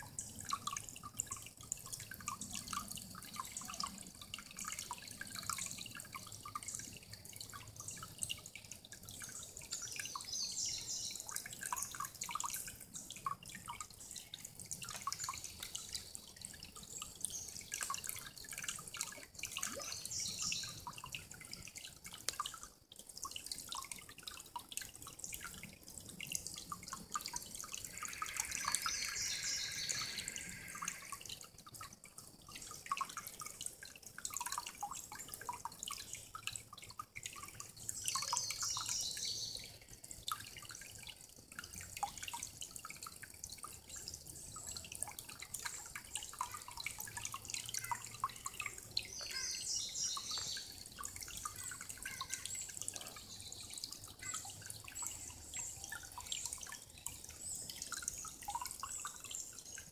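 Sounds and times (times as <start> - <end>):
creek water trickling over stones: 0.0 - 59.9
birds singing: 27.9 - 31.0, 49.0 - 50.7.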